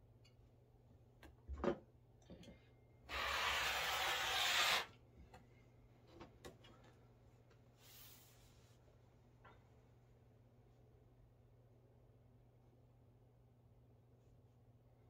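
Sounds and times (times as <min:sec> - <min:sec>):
rotary cutter slicing fabric: 0:03.1 - 0:04.9.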